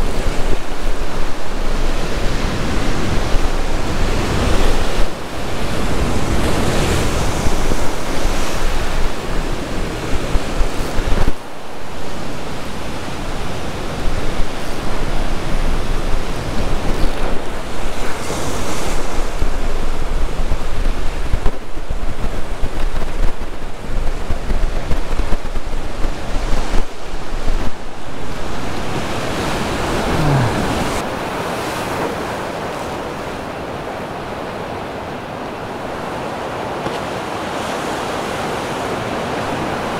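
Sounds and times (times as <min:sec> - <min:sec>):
wind buffeting microphone: 0:00.0 - 0:31.1
ocean surf breaking on rocks: 0:00.0 - 0:39.9.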